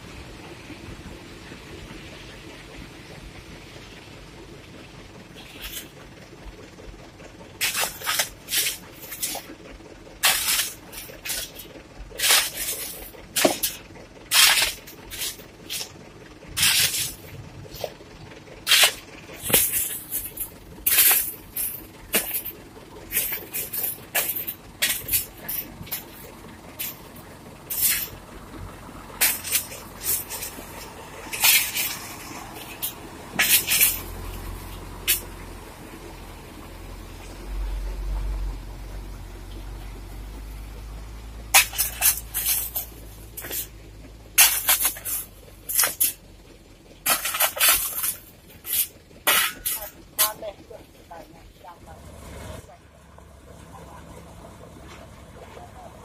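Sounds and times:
low engine rumble: 0:00.0 - 0:56.0.

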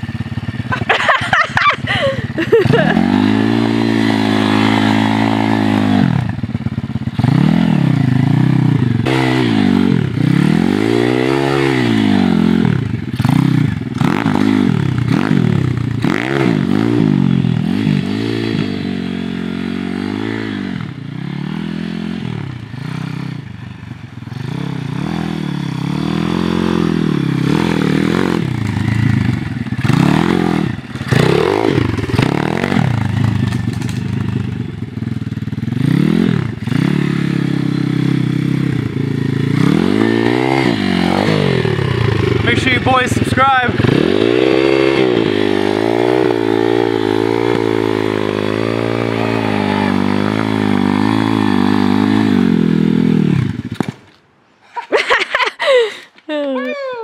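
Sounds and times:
pit bike engine revving: 0:00.0 - 0:54.0.

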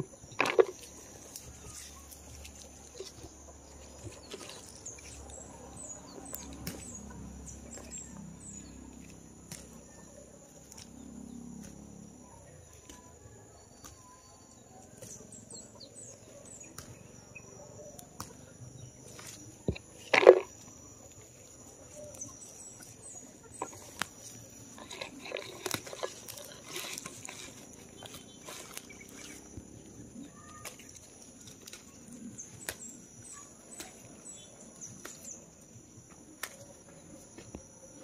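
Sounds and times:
plant leaves rustling: 0:00.0 - 0:07.1, 0:21.5 - 0:32.9
bird chirps: 0:00.0 - 0:11.5, 0:21.9 - 0:35.6
high-pitched insect drone: 0:10.6 - 0:12.4.

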